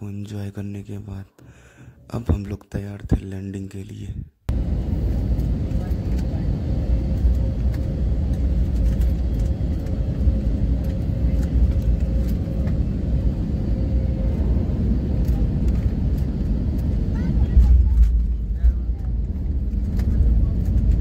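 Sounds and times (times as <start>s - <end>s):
airliner cabin rumble: 4.1s - 21.0s
steady hum: 4.5s - 21.0s.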